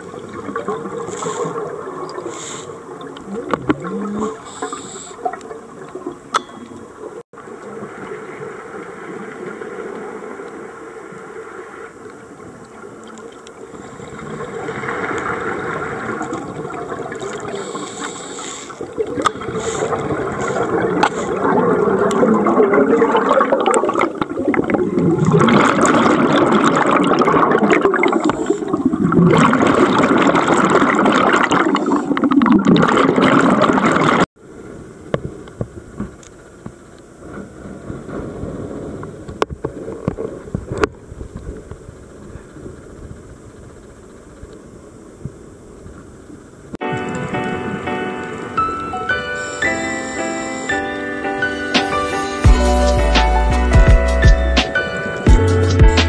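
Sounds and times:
underwater bubbles gurgling: 0.0 - 34.3.

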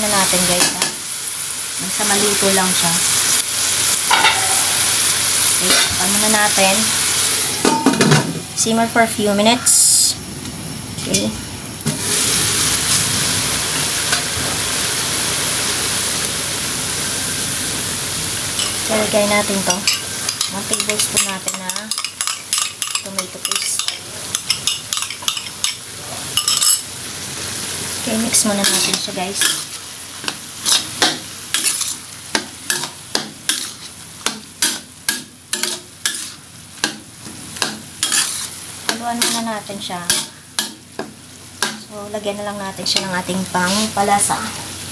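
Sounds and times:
meat sizzling in a wok: 0.0 - 44.9
spatula scraping a steel wok: 28.6 - 32.1, 32.7 - 37.0, 37.6 - 40.8.

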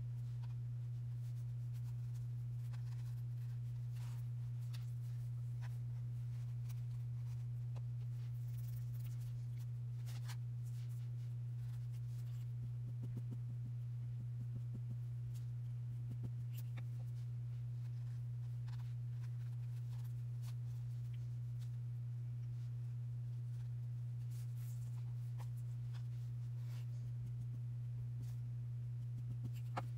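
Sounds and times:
steady low hum: 0.0 - 29.9
hands rustling paper and lace: 0.1 - 13.7.

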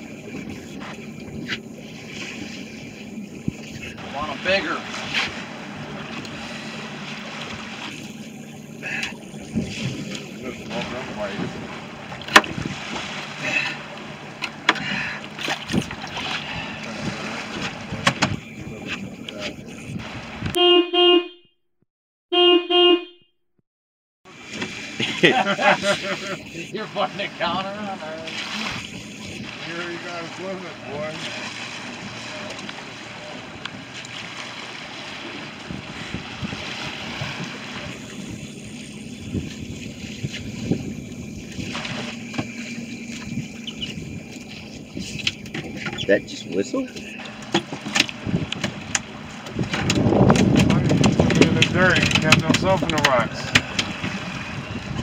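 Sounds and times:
wind on microphone: 0.0 - 6.8, 7.4 - 13.6, 15.5 - 20.6, 28.2 - 55.0
choppy water washing around boat: 0.0 - 20.6, 24.3 - 55.0.

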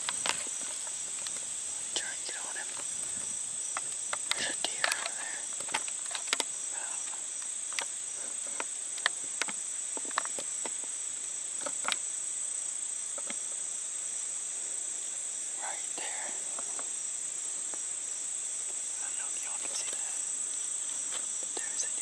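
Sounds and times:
insect chorus drone: 0.0 - 22.0
sharp clicks: 3.7 - 7.9.

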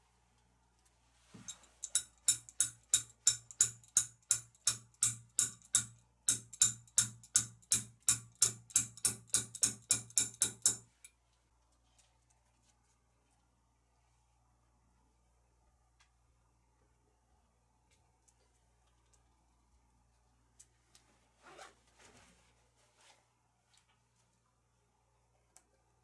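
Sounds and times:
wrench knocking wall plug: 1.8 - 10.9.

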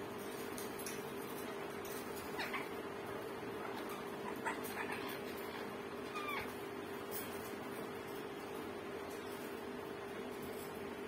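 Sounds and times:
parakeet calls: 2.3 - 2.8, 3.6 - 6.6.

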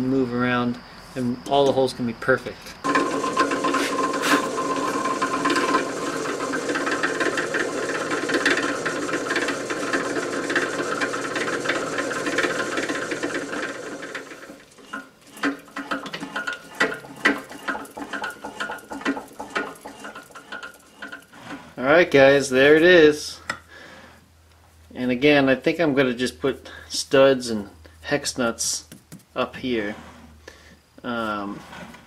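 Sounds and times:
drill press drilling metal: 2.8 - 21.2.

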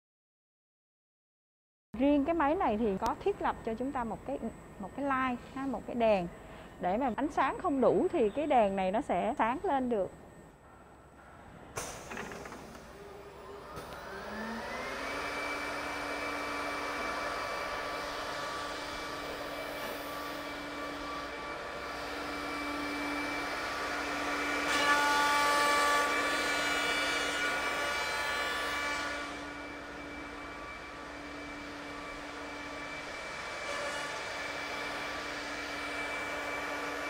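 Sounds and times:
spindle motors whining: 11.8 - 37.0.

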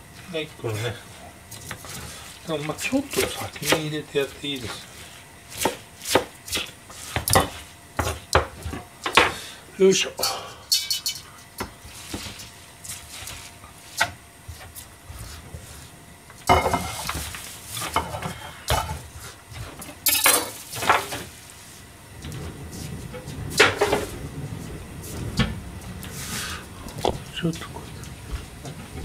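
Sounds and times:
metal colander and bowl clinking: 10.7 - 11.2, 20.0 - 20.6.

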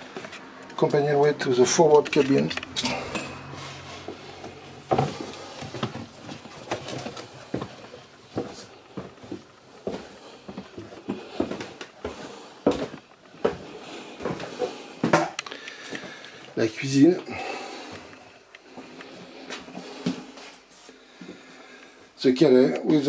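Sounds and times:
footsteps on wooden stairs: 4.0 - 16.2.

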